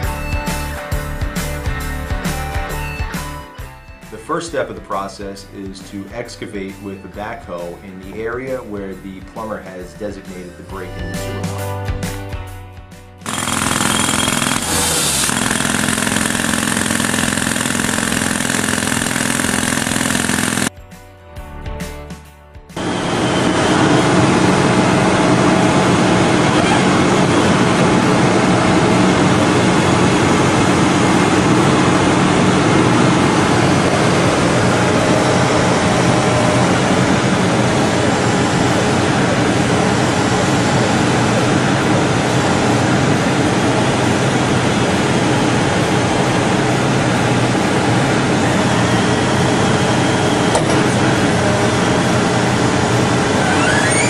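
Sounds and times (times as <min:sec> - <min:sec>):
diesel engine running: 0:13.2 - 0:20.7, 0:22.8 - 0:54.0.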